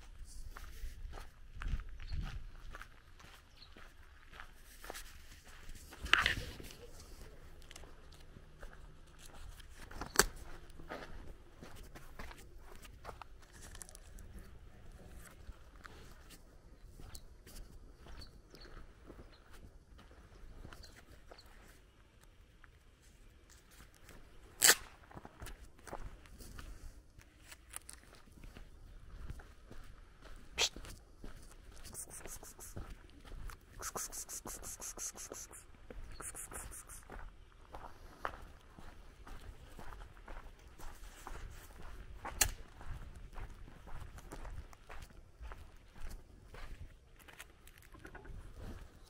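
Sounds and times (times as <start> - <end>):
footsteps crunching on dirt: 0.0 - 49.0
brush rustling: 31.7 - 32.8, 33.7 - 37.1.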